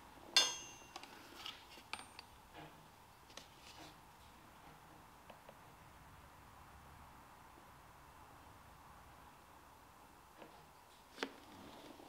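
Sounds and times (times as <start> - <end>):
sharp metallic clink: 0.4 - 1.1.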